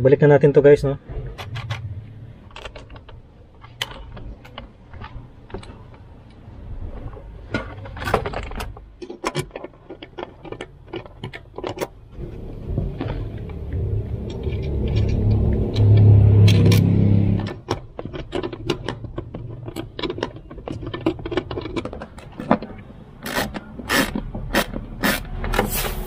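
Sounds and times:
low steady rumble: 0:12.1 - 0:18.0
plastic trim clicking and rattling: 0:17.4 - 0:24.9.

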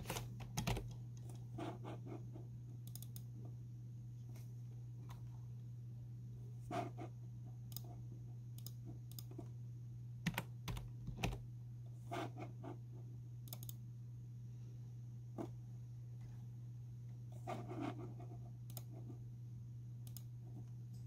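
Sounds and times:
computer keyboard typing: 0:00.0 - 0:01.3, 0:10.2 - 0:11.4, 0:13.5 - 0:13.8
steady low hum: 0:00.0 - 0:21.0.

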